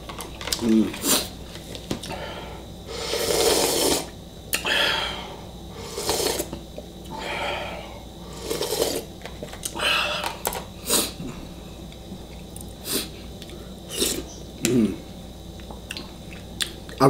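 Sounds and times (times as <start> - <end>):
slurping soup: 3.0 - 4.1, 5.8 - 6.6, 8.3 - 9.1, 13.9 - 14.3.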